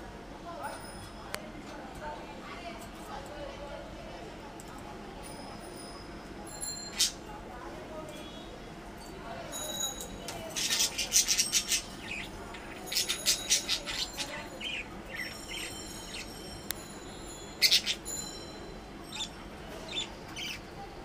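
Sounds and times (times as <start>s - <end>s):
budgerigars chirping: 17.6s - 18.0s.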